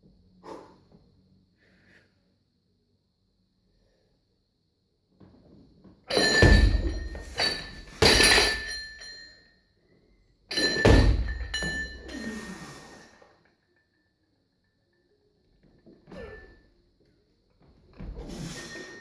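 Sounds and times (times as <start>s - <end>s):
barbell plates clanking: 10.5s - 12.5s.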